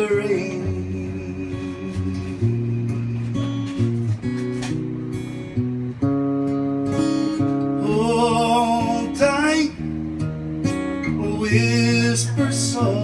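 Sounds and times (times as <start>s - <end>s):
acoustic guitar strumming: 0.0s - 13.0s
person singing: 7.7s - 9.8s.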